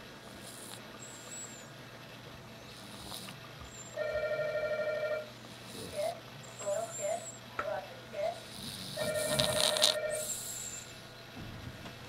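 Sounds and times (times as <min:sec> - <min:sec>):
cat snoring: 0:00.0 - 0:01.6, 0:02.7 - 0:04.1, 0:05.1 - 0:07.4, 0:08.4 - 0:11.0.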